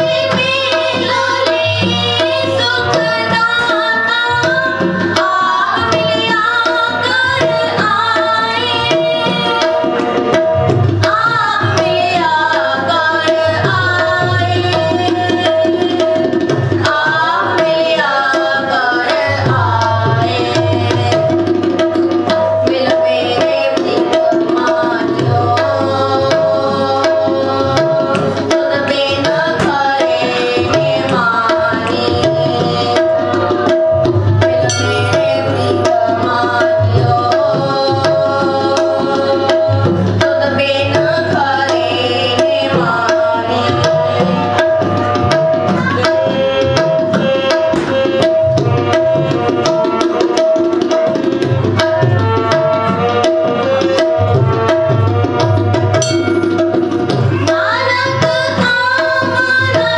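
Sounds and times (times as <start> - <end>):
hand drum rhythm: 0.0 - 59.9
harmonium melody: 0.0 - 59.9.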